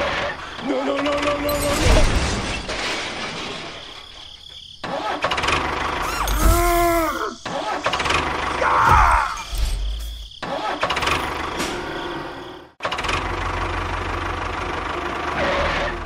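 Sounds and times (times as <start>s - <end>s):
tractor engine running roughly: 12.8s - 16.0s.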